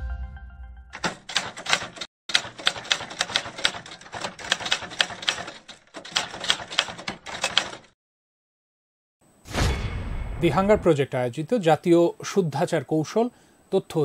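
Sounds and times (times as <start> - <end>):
typewriter key clacks: 1.0 - 7.9.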